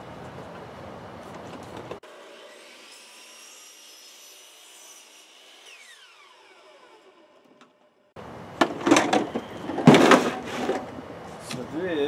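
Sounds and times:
miter saw motor spinning down: 0:05.7 - 0:07.6
loud knocks and clatter: 0:08.6 - 0:10.9.

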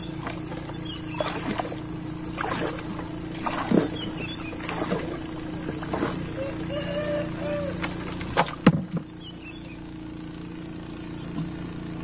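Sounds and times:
low engine hum: 0:00.0 - 0:12.0
sharp knocks on boat: 0:07.7 - 0:09.3, 0:11.3 - 0:11.6.

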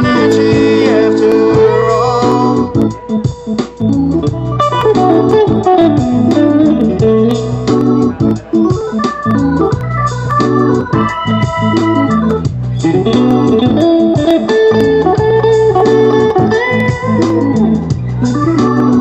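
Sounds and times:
live band instrumental: 0:00.0 - 0:19.0.

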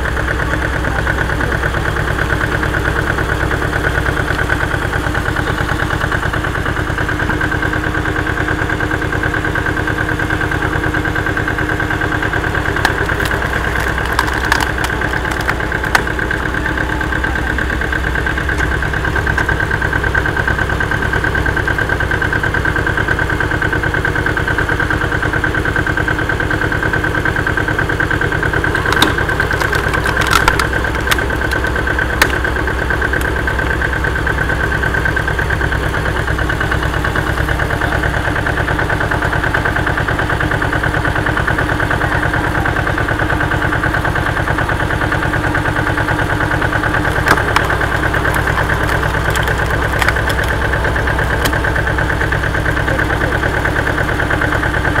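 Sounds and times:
log splitter whine: 0:00.0 - 0:55.0
tractor engine running: 0:00.0 - 0:55.0
log cracking: 0:11.8 - 0:20.3, 0:28.1 - 0:38.4, 0:45.5 - 0:52.9.

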